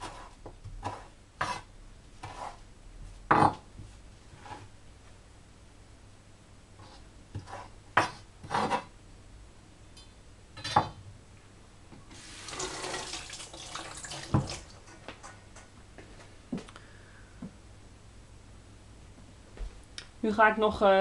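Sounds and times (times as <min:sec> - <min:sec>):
knife scraping cutting board: 0:00.0 - 0:02.6, 0:03.3 - 0:03.6, 0:04.3 - 0:04.7, 0:06.8 - 0:08.9
tap running water: 0:12.1 - 0:15.4.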